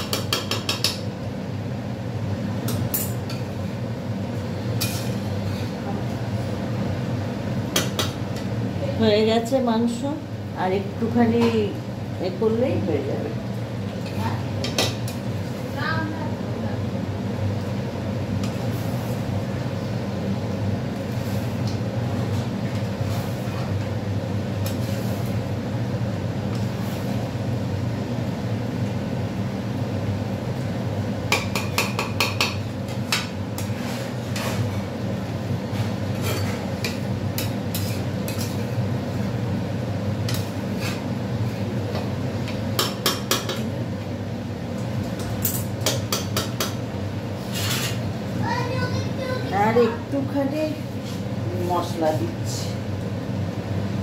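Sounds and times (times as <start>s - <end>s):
metal spatula scraping a pan: 33.6s - 34.8s, 35.8s - 36.6s, 37.7s - 38.6s, 47.4s - 48.0s.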